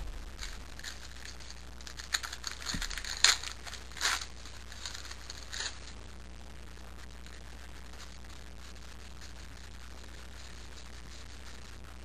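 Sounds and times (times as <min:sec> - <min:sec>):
wrapper rustling and crinkling: 0:00.0 - 0:05.9.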